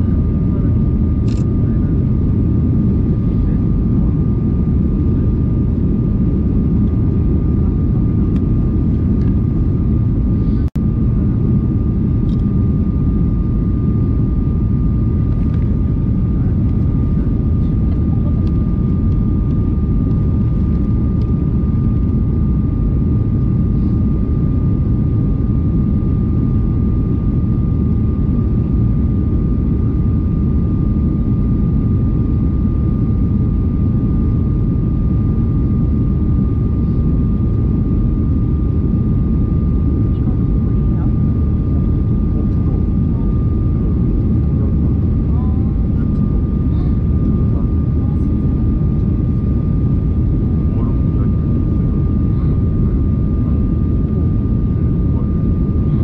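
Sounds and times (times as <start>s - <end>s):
jet engines and airflow rumble: 0.0s - 56.0s.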